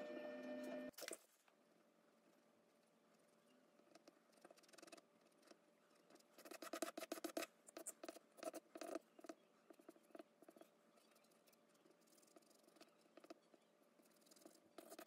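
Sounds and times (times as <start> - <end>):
pencil scratching on paper: 3.8 - 15.0.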